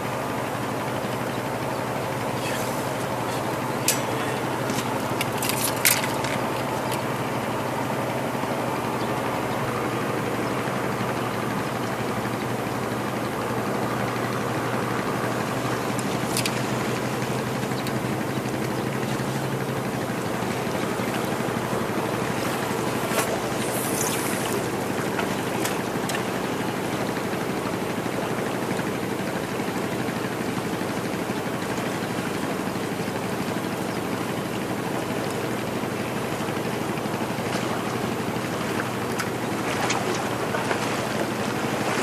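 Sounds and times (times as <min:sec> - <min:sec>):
low engine drone: 0:00.0 - 0:42.0
wind: 0:00.0 - 0:42.0
sea waves: 0:13.5 - 0:27.1, 0:36.8 - 0:42.0.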